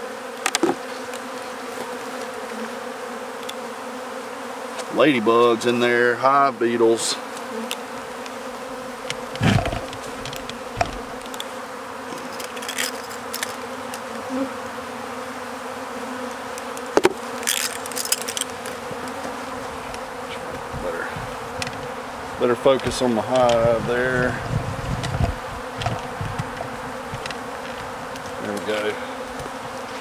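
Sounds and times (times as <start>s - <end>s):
honeybees buzzing: 0.0s - 30.0s
short knocks: 9.1s - 11.1s.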